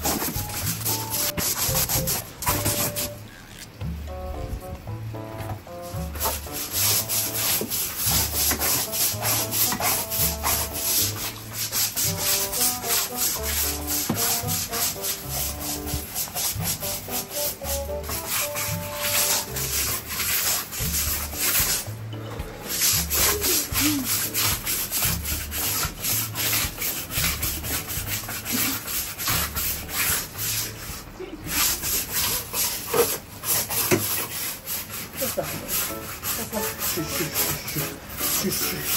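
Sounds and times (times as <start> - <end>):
brush scrubbing wet wood: 0.0 - 3.2, 5.8 - 38.9.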